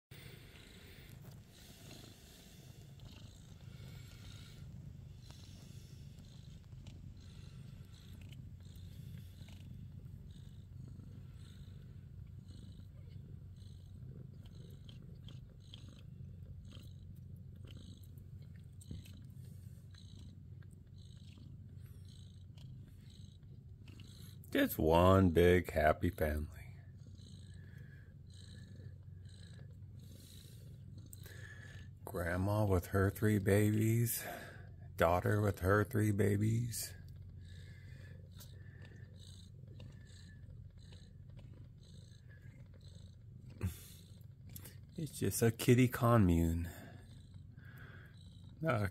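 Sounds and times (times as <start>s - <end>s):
cats purring: 0.0s - 48.9s
kittens suckling smacks: 37.0s - 45.0s.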